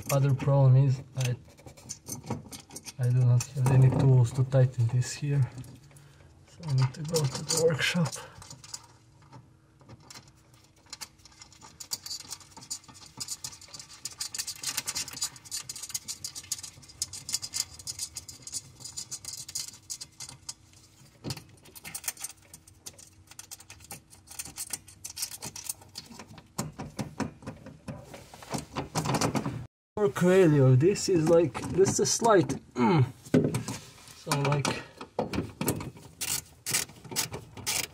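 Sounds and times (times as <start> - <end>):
metallic clicks and rattles: 0.0 - 4.0, 6.6 - 29.5.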